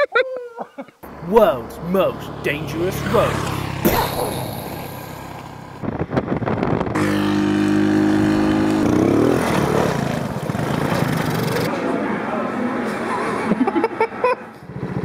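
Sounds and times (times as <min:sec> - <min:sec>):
motorcycle engine revving: 0:01.0 - 0:11.7.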